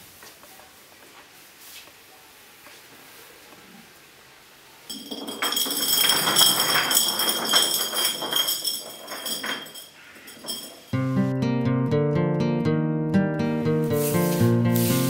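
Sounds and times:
metallic jangling and ringing: 4.9 - 11.0
rapid irregular clinks: 4.9 - 11.1.

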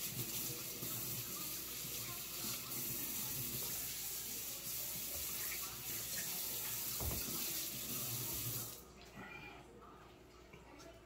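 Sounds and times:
tap running into a sink: 4.9 - 8.7.

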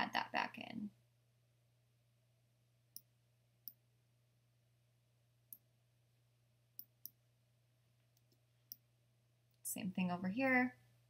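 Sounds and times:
computer mouse clicking: 8.1 - 8.8.

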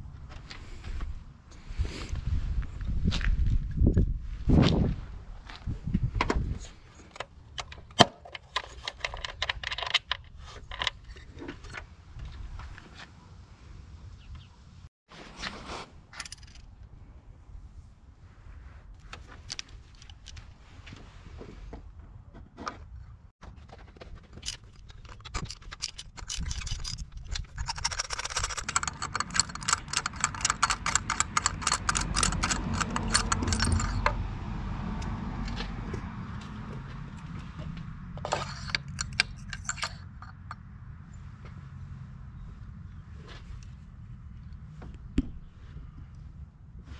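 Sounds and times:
metallic clinks of hand tools: 24.4 - 34.2.

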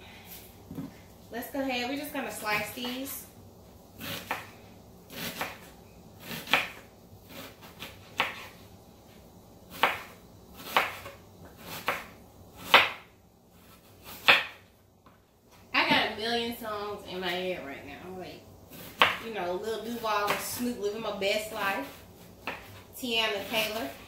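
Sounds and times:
knife slicing onion on cutting board: 4.0 - 4.5, 5.1 - 8.6, 9.7 - 14.6, 18.7 - 19.2, 19.9 - 20.7, 21.5 - 24.0.

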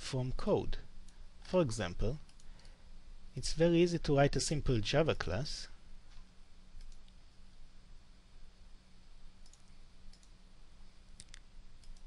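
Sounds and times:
low steady hum: 0.0 - 12.0
computer mouse clicks: 2.2 - 2.7, 6.1 - 7.2, 9.4 - 10.4, 11.2 - 12.0.

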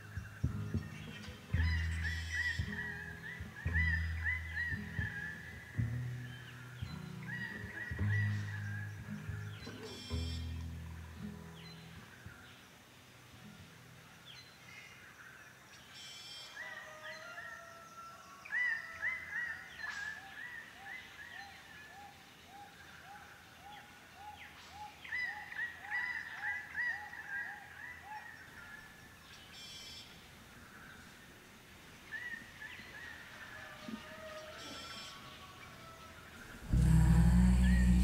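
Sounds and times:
birds calling: 0.0 - 12.6.

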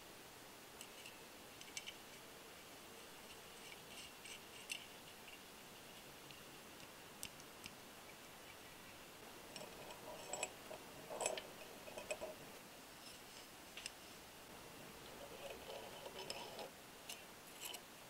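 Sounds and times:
small metal parts clicking: 0.8 - 2.0, 9.5 - 12.4, 15.1 - 17.8.

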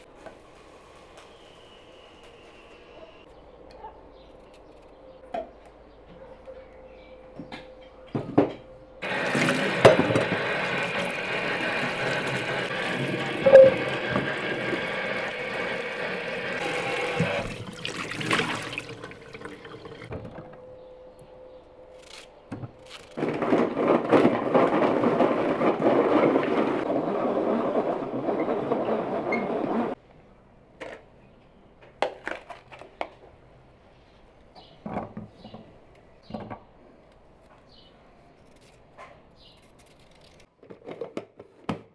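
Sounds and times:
food chopper motor running: 9.0 - 17.7.

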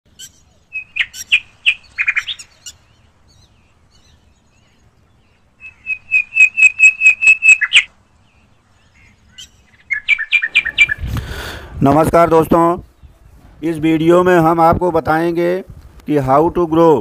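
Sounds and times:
small bird chirping: 0.1 - 11.1.

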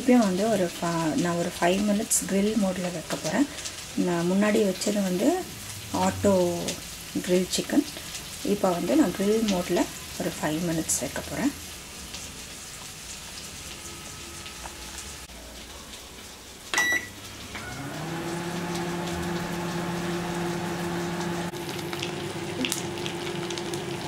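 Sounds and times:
microwave oven humming: 12.8 - 15.5, 16.7 - 24.0
microwave click: 16.7 - 17.9
microwave beep: 16.7 - 18.0.

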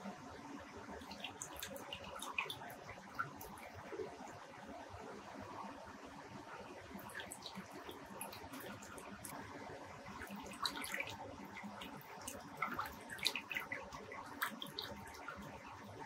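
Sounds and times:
faint steady hum: 0.0 - 16.0
underwater rushing water: 10.0 - 16.0.

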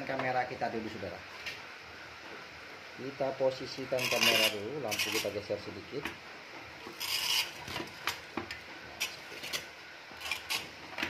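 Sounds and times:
scrape on workbench: 4.0 - 5.3, 6.9 - 7.8.

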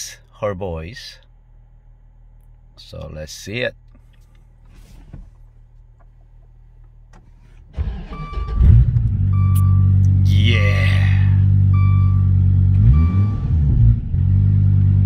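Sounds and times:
car engine starting and idling: 3.8 - 15.0
warning chime beeping: 9.3 - 11.1, 11.7 - 13.5.

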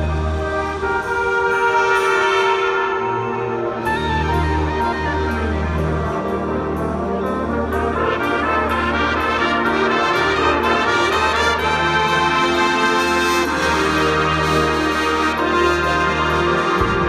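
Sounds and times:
brass ensemble playing chords: 0.0 - 17.0.

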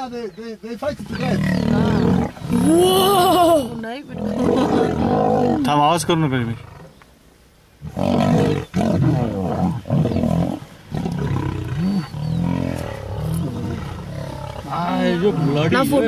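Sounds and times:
lions snarling and roaring: 1.0 - 3.4, 4.0 - 5.8, 7.8 - 16.0.

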